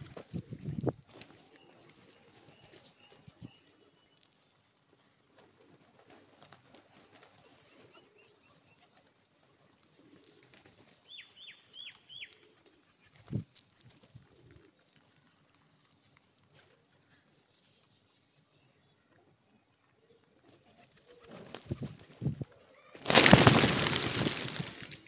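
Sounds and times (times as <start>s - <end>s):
pecking and wing flutter: 0.0s - 3.4s, 4.1s - 7.9s, 9.9s - 11.0s, 20.4s - 25.0s
pigeons cooing: 14.1s - 14.9s.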